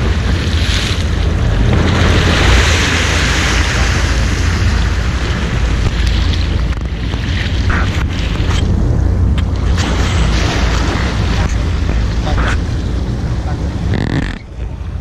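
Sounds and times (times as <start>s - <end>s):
boat: 0.0s - 15.0s
sea wash: 0.0s - 15.0s
wind buffeting microphone: 0.0s - 15.0s.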